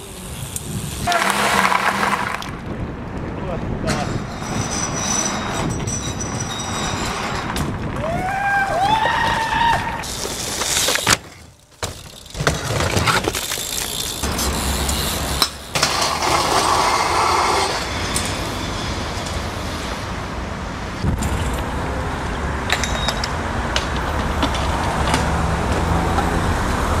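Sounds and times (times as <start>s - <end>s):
bike tyres rolling on pavement: 0.0s - 21.9s
wind on microphone: 2.2s - 10.0s
bike knocking on ledges: 9.2s - 14.5s.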